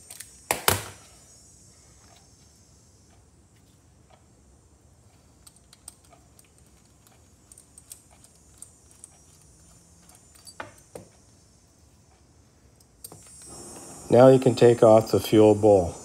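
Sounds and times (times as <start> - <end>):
socket wrench clicks and ticks: 0.0 - 0.4, 5.4 - 11.2
metal clinks: 5.4 - 11.1.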